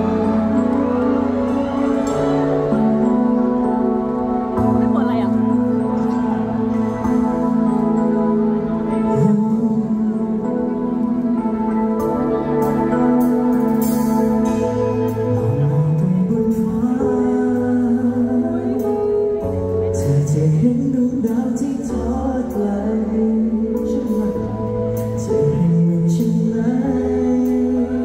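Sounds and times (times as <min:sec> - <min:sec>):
backing music: 0:00.0 - 0:28.0
man singing into a microphone: 0:09.0 - 0:11.4, 0:15.3 - 0:28.0.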